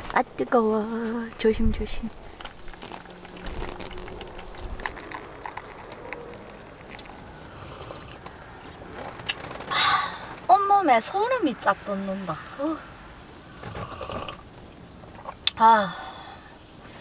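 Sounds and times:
water trickling into mug: 2.7s - 8.2s.

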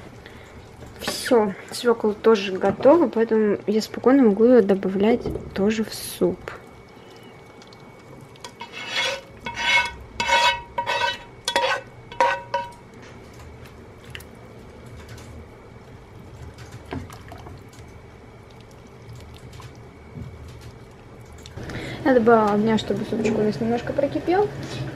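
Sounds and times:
faint steady hum: 0.0s - 24.9s
utensil scraping a frying pan: 8.4s - 12.7s.

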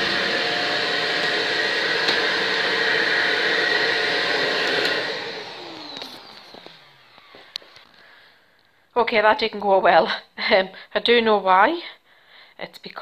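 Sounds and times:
motor winding down whine: 0.0s - 7.8s
vacuum cleaner running: 0.0s - 8.2s.

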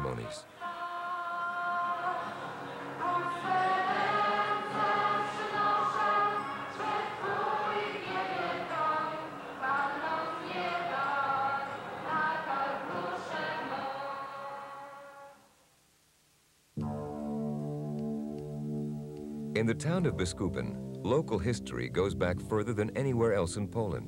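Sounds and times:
choir singing: 0.0s - 15.4s.

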